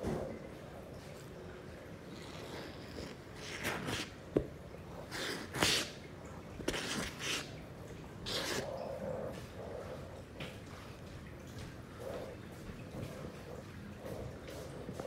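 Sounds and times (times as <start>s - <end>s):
brush rasping through fur: 2.2s - 4.2s, 8.3s - 8.7s.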